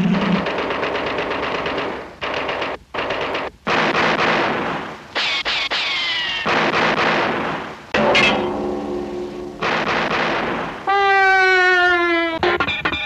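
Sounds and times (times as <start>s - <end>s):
cartoon machine-gun fire: 0.1s - 7.7s, 9.6s - 10.9s
falling whine: 8.0s - 10.9s.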